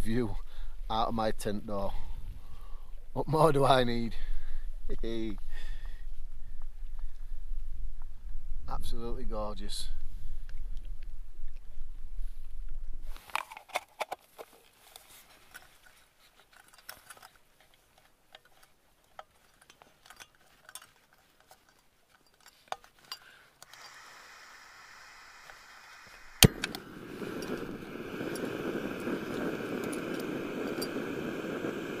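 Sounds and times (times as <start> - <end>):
wind rumbling on microphone: 0.0 - 13.2, 26.4 - 32.0
gas stove hissing: 23.7 - 32.0.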